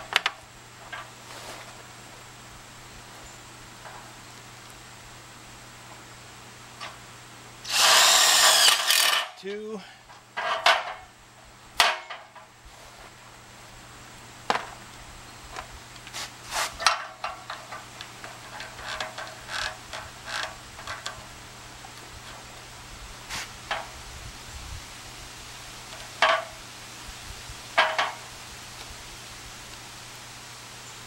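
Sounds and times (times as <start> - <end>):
tools knocking and clicking: 27.8 - 28.2.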